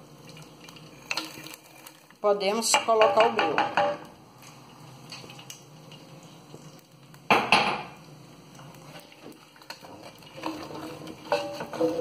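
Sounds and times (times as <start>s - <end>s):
utensil knocking on a pan: 2.7s - 4.0s
spoon scraping a pan: 8.9s - 12.0s.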